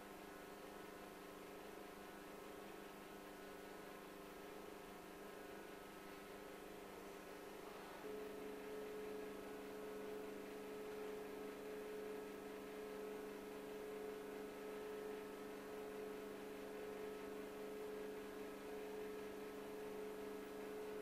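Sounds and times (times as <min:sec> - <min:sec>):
steady tonal hum: 0:00.0 - 0:21.0
faint hiss: 0:05.3 - 0:15.9.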